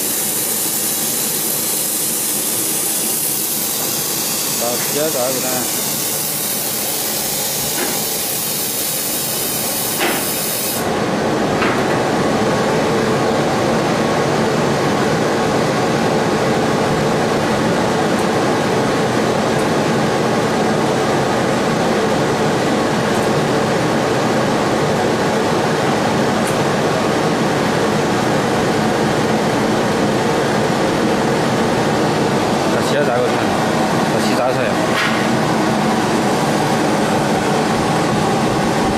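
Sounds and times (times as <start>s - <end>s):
laser cutter rushing noise: 0.0s - 11.0s, 32.2s - 38.9s.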